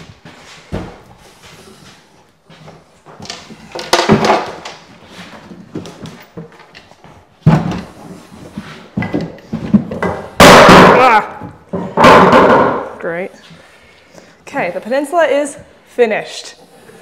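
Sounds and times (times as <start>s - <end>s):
wooden cabinet knocking: 9.0s - 12.9s.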